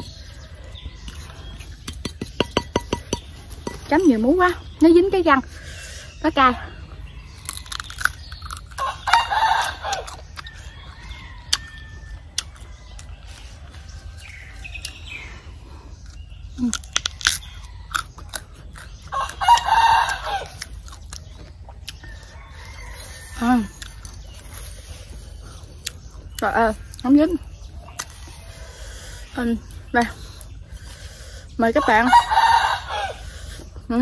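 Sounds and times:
crunching and chewing mango: 0:06.7 - 0:31.6
rooster crowing: 0:08.7 - 0:14.7, 0:19.1 - 0:20.6, 0:22.0 - 0:23.5, 0:31.8 - 0:33.3.

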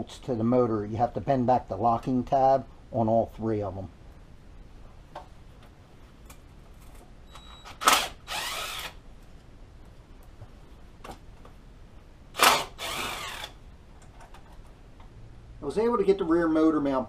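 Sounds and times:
tool ratcheting: 0:12.4 - 0:13.6.

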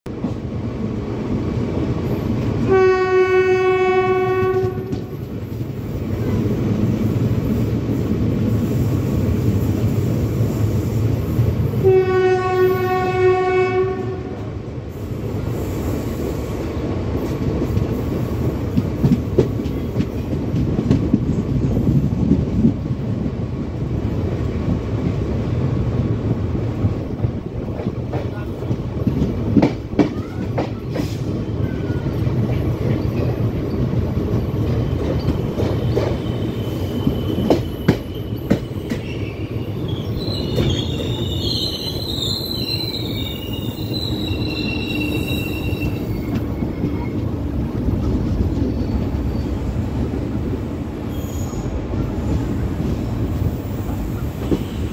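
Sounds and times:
train rumbling on rails: 0:00.0 - 0:54.9
train horn: 0:02.6 - 0:05.2, 0:11.8 - 0:14.5.

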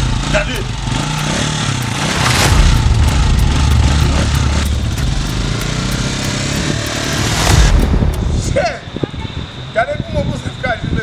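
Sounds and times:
small motorcycle engine running: 0:00.0 - 0:08.2.

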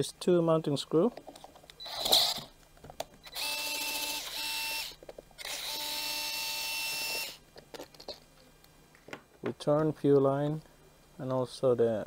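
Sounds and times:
electric screwdriver whine: 0:01.8 - 0:02.5, 0:03.2 - 0:07.4.

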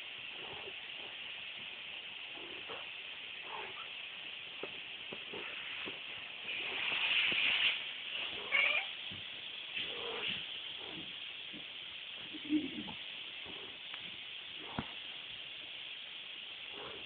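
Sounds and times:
vacuum cleaner hiss: 0:00.0 - 0:17.0
kittens scuffling: 0:04.5 - 0:15.0.

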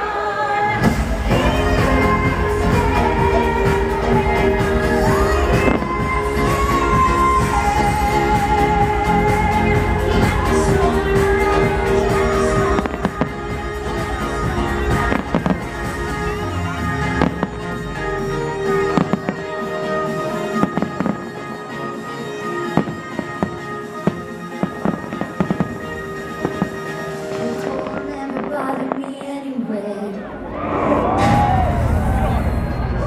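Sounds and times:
music: 0:00.0 - 0:33.0
fireworks bursting: 0:00.8 - 0:29.7.

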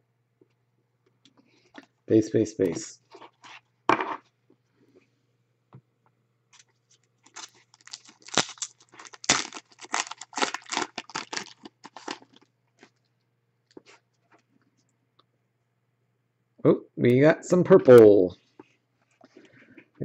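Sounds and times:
wrapper tearing and crinkling: 0:06.6 - 0:12.5.

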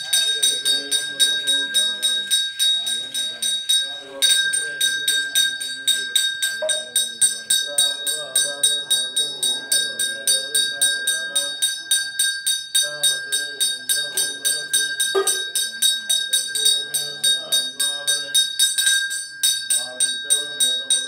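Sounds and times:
temple bell rung rapidly: 0:00.0 - 0:21.0
voices: 0:00.0 - 0:21.0.

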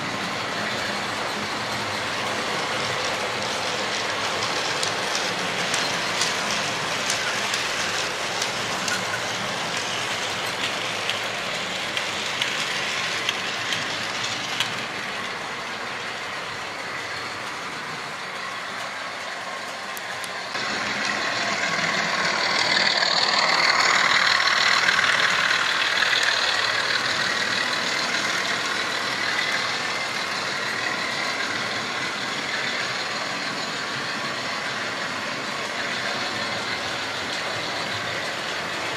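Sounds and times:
model train motors whirring: 0:00.0 - 0:38.9
wheels rolling on track: 0:00.0 - 0:38.9
clicks over rail joints: 0:00.1 - 0:16.2.

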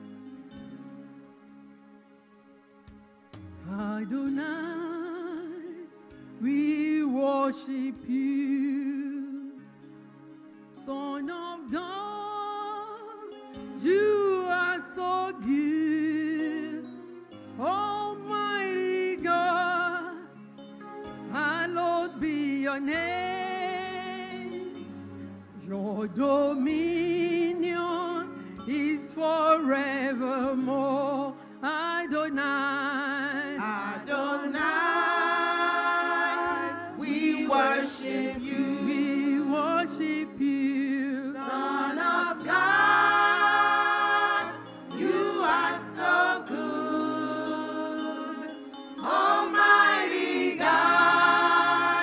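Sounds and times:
person singing with vibrato: 0:03.7 - 0:09.8, 0:10.8 - 0:20.4, 0:25.6 - 0:52.0.

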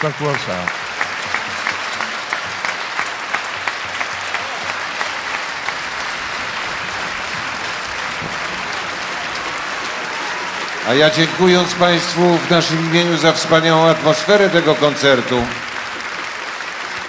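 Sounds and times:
audience applauding: 0:00.0 - 0:17.0
claps near the microphone: 0:00.0 - 0:17.0.

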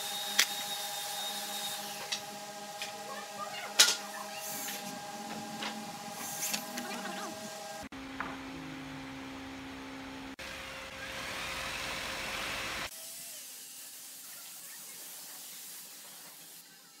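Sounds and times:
mechanical hum: 0:00.0 - 0:17.0
spray gun hissing: 0:11.6 - 0:17.0.

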